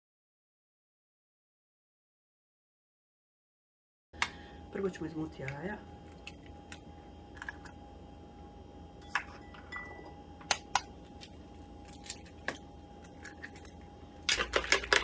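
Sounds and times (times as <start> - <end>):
faint steady hum: 4.2 - 15.0
eggs cracking on a bowl: 5.4 - 7.8, 10.4 - 15.0.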